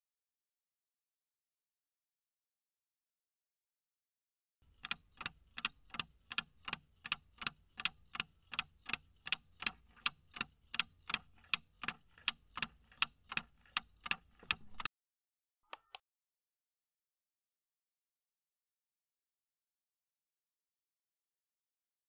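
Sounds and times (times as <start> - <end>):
clock ticking: 4.6 - 14.9.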